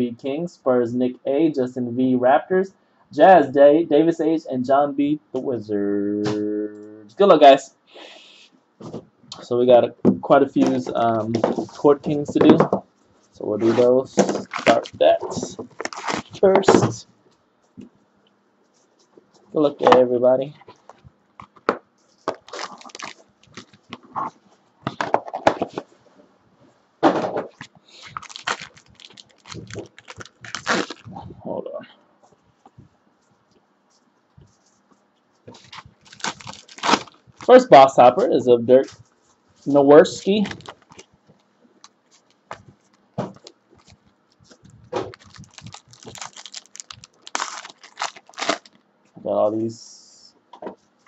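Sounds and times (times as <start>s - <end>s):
foil packs crinkling: 14.2s - 16.6s, 22.3s - 24.3s, 27.6s - 31.2s, 35.5s - 37.9s, 40.1s - 41.1s, 43.4s - 48.8s.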